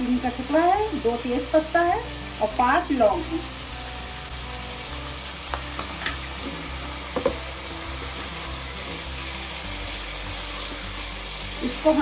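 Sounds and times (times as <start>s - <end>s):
onions sizzling in oil: 0.0s - 12.0s
spoon knocking against pot: 7.2s - 7.4s.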